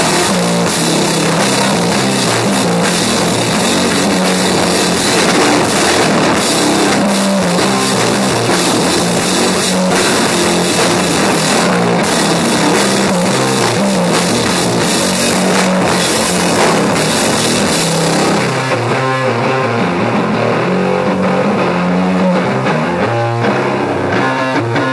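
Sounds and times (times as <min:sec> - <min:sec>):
drums with crashing cymbals: 0:00.0 - 0:19.2
distorted electric guitar riff: 0:00.0 - 0:24.9.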